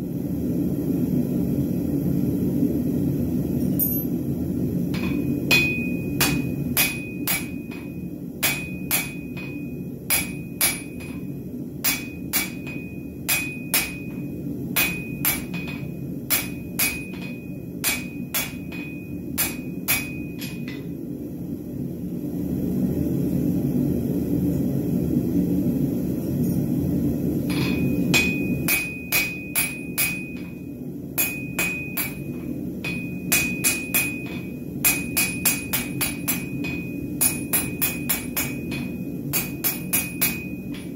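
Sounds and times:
steady low rush: 0.0s - 40.9s
hammer ringing on anvil: 5.0s - 20.9s, 27.5s - 40.9s.

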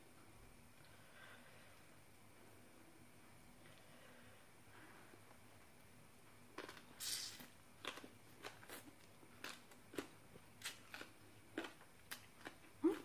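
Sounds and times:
wet chewing and lip-smacking: 7.8s - 13.0s.

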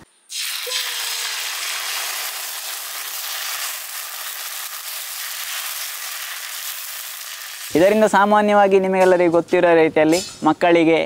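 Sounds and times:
batter sizzling on hot griddle: 0.3s - 8.1s.

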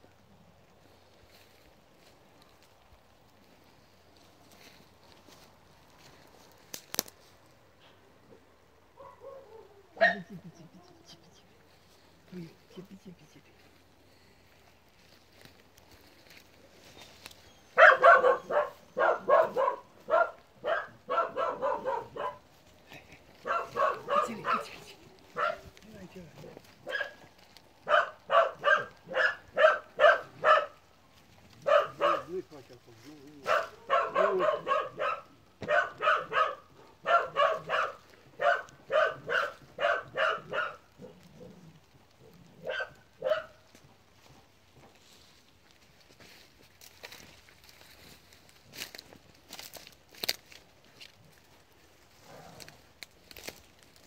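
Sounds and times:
dog barking: 9.0s - 10.3s, 17.7s - 22.5s, 23.4s - 25.7s, 26.8s - 27.2s, 27.8s - 30.8s, 31.6s - 32.4s, 33.4s - 41.6s, 42.2s - 43.6s.

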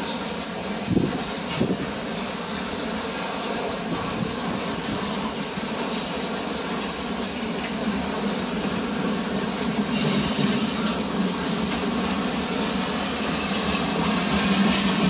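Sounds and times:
freight train rumbling past: 0.0s - 15.0s.

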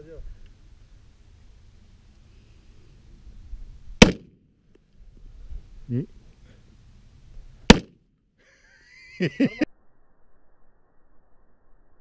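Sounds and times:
rifle shots: 4.0s - 4.4s, 7.7s - 8.0s.

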